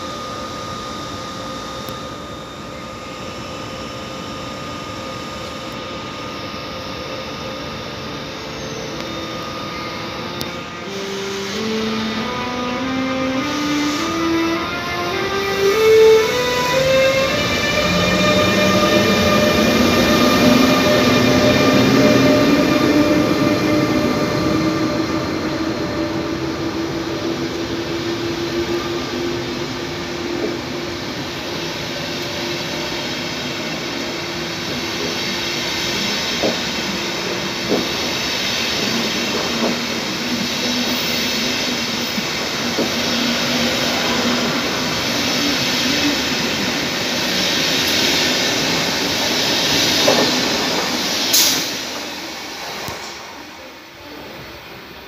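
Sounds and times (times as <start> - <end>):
train wheels rumbling on rails: 13.4 - 55.0.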